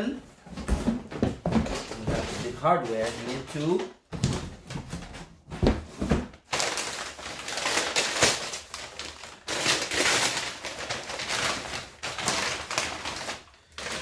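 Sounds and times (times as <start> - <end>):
packing paper crinkling: 2.0 - 3.8, 6.4 - 14.0.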